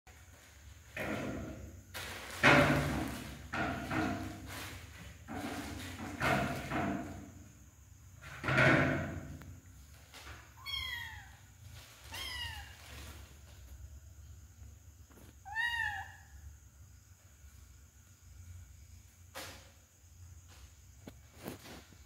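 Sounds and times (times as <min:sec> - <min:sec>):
plastic bag rustling: 0:01.7 - 0:06.8, 0:11.6 - 0:13.8
kitten mewing: 0:15.4 - 0:16.2.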